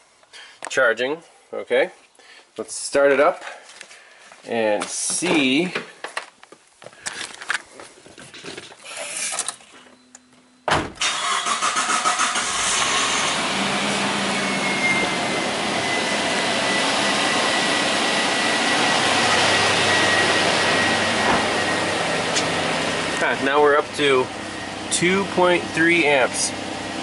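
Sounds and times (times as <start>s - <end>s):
car engine cranking and idling: 11.0s - 27.0s.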